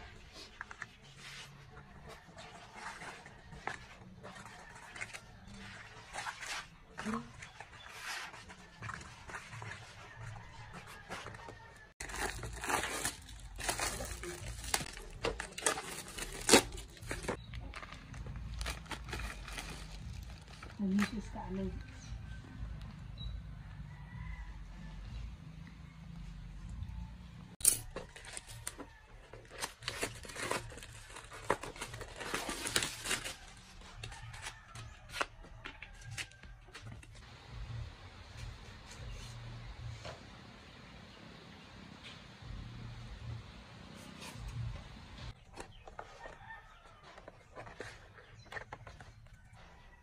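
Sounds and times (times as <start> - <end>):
packaging crinkling and rustling: 2.0 - 21.3, 27.7 - 37.2, 45.3 - 49.7
packaging tearing: 12.0 - 20.7, 27.8 - 33.7
packaging cracking: 12.0 - 20.8, 27.7 - 34.4.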